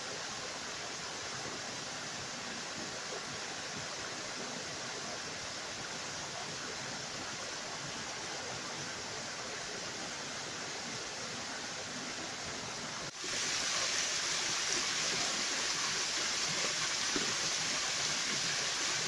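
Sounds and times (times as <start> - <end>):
waterfall splashing into stream: 13.0 - 19.0.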